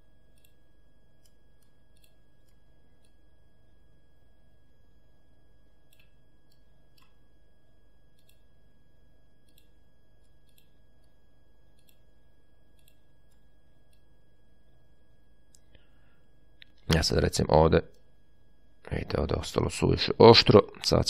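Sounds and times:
steady low hum: 0.0s - 21.0s
mouse and keyboard clicks: 1.2s - 3.2s, 9.4s - 9.8s, 10.4s - 11.1s, 11.8s - 12.0s, 12.8s - 14.0s.

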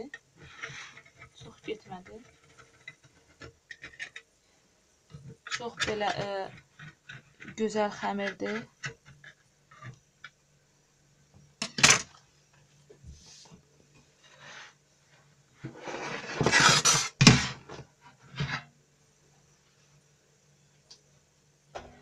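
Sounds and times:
scraping and rustling: 0.0s - 10.3s, 11.8s - 18.7s.

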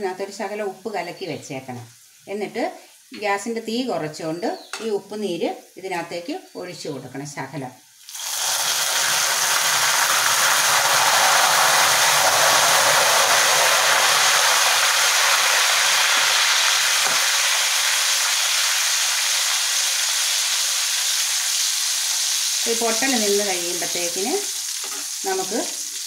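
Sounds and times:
oil hissing and popping: 8.0s - 23.0s, 24.4s - 26.0s.

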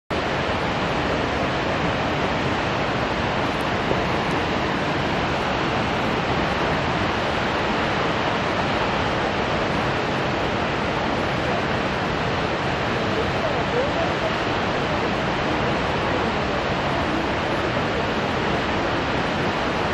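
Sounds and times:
waterfall rushing: 0.1s - 19.9s.

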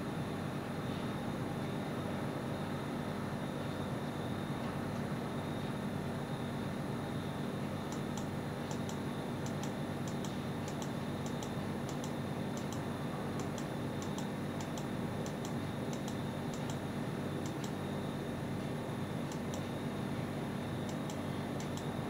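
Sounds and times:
steady low hum: 0.0s - 22.0s
light mechanical ticking: 7.9s - 16.8s, 17.4s - 17.8s, 19.3s - 19.8s, 20.8s - 22.0s.

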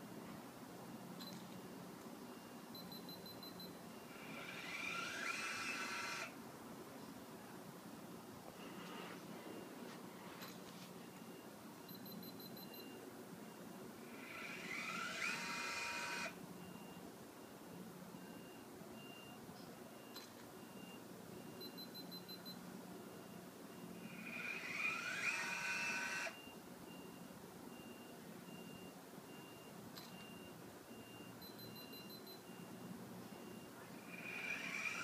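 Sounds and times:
motor whining: 4.1s - 6.4s, 14.0s - 16.4s, 24.0s - 26.4s, 34.0s - 35.0s.

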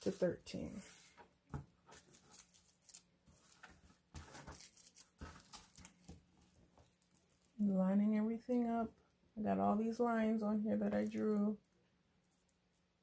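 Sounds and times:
tissue paper rustling: 0.0s - 1.2s, 1.8s - 7.6s.

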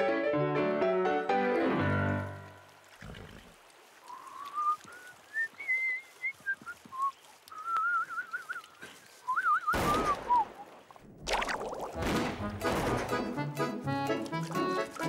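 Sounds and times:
person whistling a tune: 4.4s - 10.4s.

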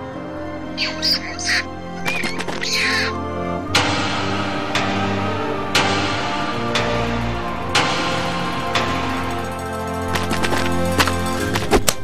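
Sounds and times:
background music sustained tones: 0.0s - 12.0s
sharp percussive hit: 3.7s - 11.2s.

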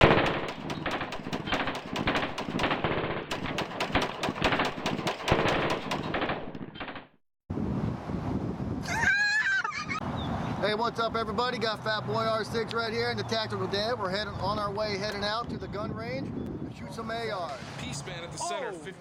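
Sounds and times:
automatic gunfire: 0.0s - 7.1s
outdoor background noise: 0.0s - 19.0s.

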